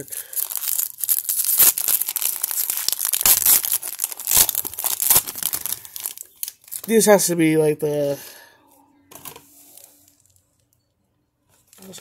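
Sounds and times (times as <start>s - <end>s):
foil wrapper tearing and crinkling: 0.0s - 7.0s.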